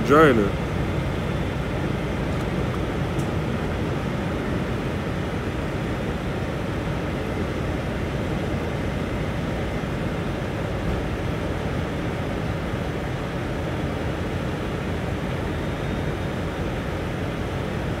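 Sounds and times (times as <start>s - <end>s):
diesel truck engines idling: 0.0s - 18.0s.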